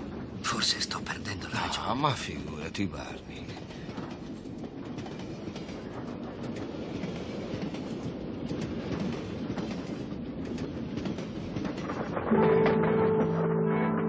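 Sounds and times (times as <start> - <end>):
train rumble: 0.0 - 14.0.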